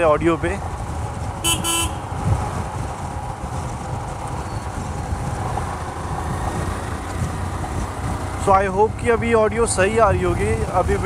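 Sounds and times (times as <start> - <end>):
motorcycle engine rumble: 0.0 - 11.0
wind blast on microphone: 1.3 - 8.2
vehicle horn honk: 1.4 - 2.1.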